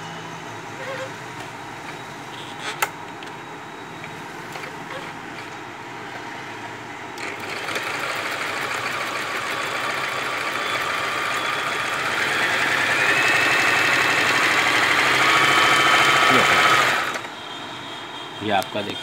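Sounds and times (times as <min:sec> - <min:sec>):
sewing machine stitching: 0:07.2 - 0:17.3
machine whine: 0:07.2 - 0:19.0.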